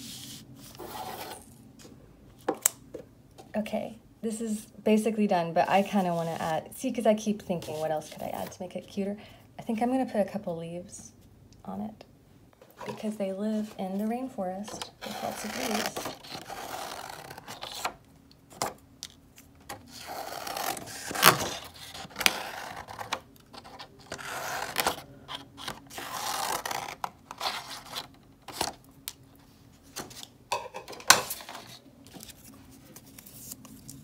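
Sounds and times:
scissors cutting paper: 15.0s - 17.9s
paper rustling: 31.2s - 34.0s.

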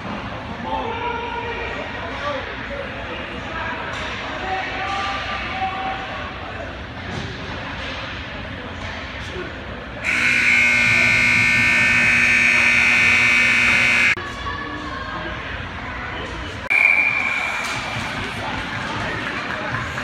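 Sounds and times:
game buzzer harsh tone: 10.0s - 14.2s.

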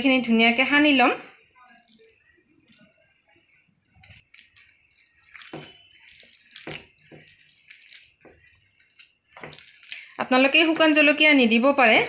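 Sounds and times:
hand squelching wet mash: 1.7s - 3.0s, 3.9s - 12.0s.

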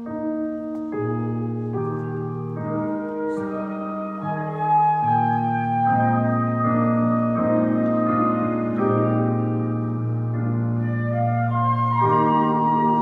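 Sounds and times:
organ playing sustained chords: 1.0s - 13.0s.

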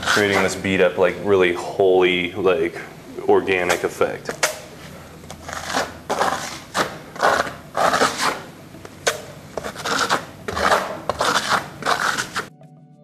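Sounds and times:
trowel scraping plaster on wall: 0.0s - 0.7s, 5.3s - 12.5s.

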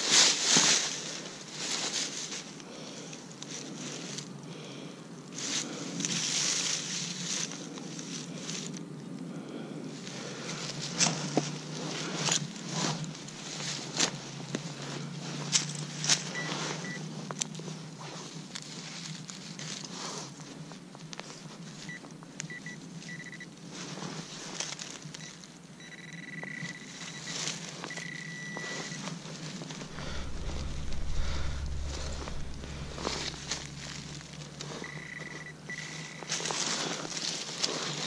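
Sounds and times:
rustling in leaf litter: 0.0s - 4.3s, 5.3s - 8.8s, 10.0s - 25.5s, 26.8s - 38.0s
metal detector beeping: 16.3s - 17.1s, 21.9s - 23.5s, 25.2s - 29.1s, 34.8s - 36.5s.

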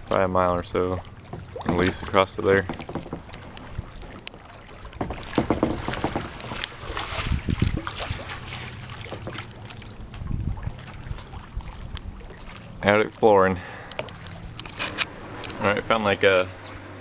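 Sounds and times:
paddle stroke splashes: 0.0s - 17.0s
water lapping around kayak: 0.0s - 17.0s
wind on microphone: 5.4s - 8.5s, 10.1s - 12.3s.

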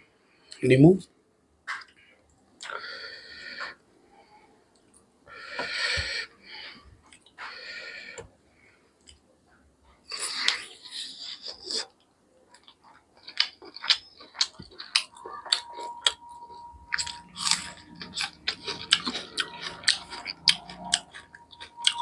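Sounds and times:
man breathing heavily: 5.3s - 8.9s
chewing with mouth clicks: 10.1s - 22.0s.

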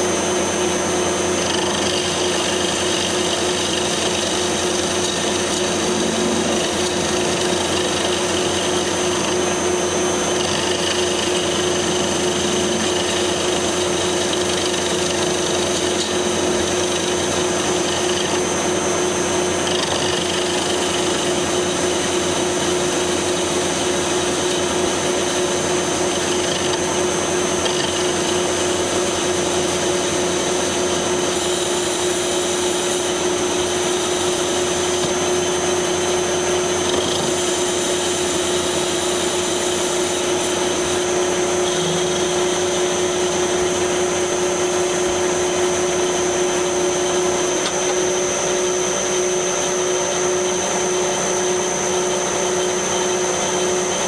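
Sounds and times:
metal lathe humming and whining: 0.0s - 54.0s.

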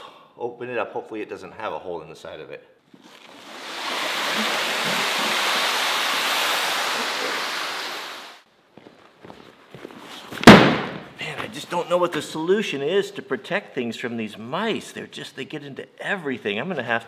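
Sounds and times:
loud thump: 10.4s - 11.2s.

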